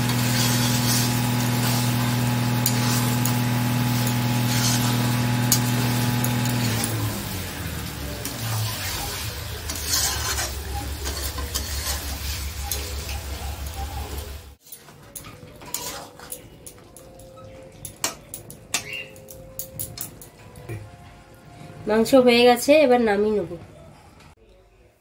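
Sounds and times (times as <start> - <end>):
metal spatula scraping pan: 0.0 - 3.3, 3.9 - 6.9, 8.3 - 13.4, 14.6 - 16.8
meat sizzling: 0.0 - 14.7.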